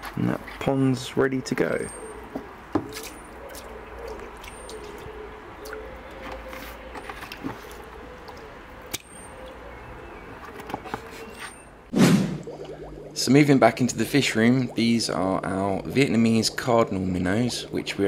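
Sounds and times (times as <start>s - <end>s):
drips: 2.8s - 6.3s, 7.2s - 11.7s, 12.3s - 18.0s
faint wavering hum: 12.4s - 18.0s.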